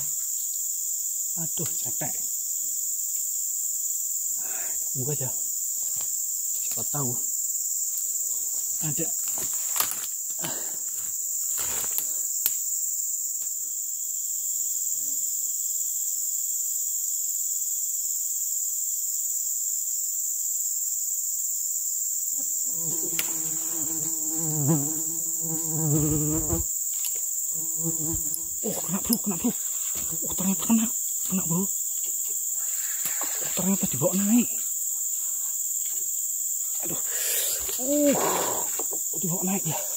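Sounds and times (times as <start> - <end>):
insects droning: 0.0 - 39.9
low voice-like sound: 37.8 - 38.7.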